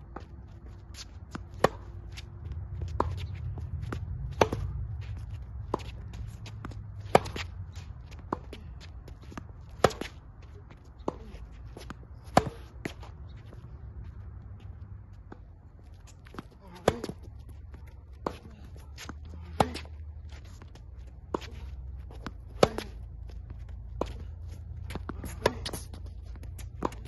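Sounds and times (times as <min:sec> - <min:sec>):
shoes scuffing on court: 0:00.0 - 0:27.0
racket hitting tennis ball: 0:00.9 - 0:13.2, 0:16.0 - 0:17.3, 0:18.0 - 0:20.2, 0:21.2 - 0:27.0
ball bouncing: 0:01.2 - 0:10.2, 0:15.3 - 0:20.0, 0:20.6 - 0:27.0.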